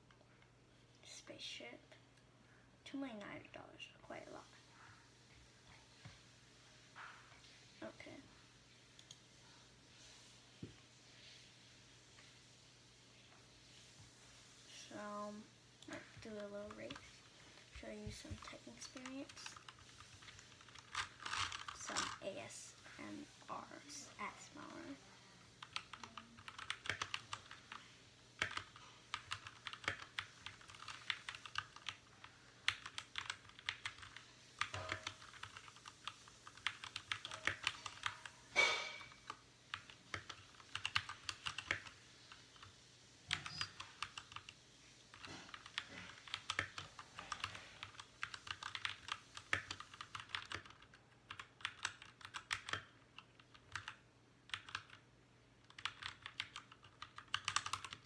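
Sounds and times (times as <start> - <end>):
mechanical keyboard typing: 17.8 - 22.2, 25.6 - 27.8, 28.4 - 38.2, 39.2 - 42.7, 43.3 - 55.0, 55.6 - 58.0.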